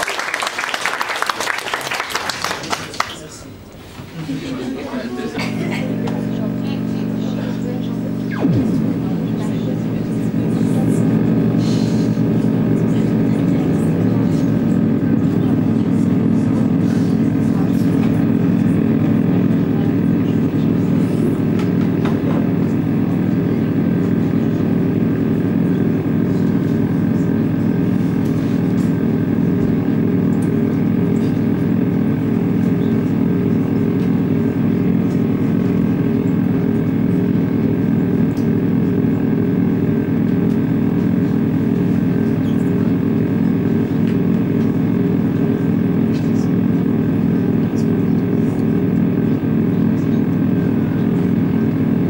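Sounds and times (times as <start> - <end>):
ambient drone music: 5.4 - 15.6.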